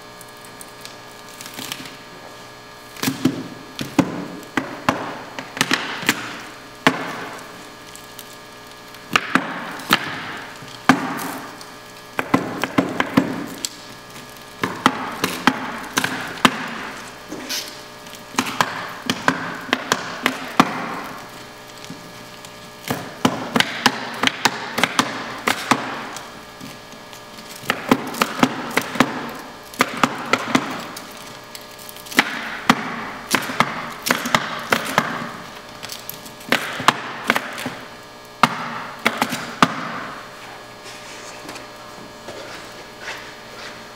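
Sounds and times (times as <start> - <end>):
liquid nitrogen hissing rush: 0.0 - 43.9
sharp crackling snaps: 5.3 - 39.6.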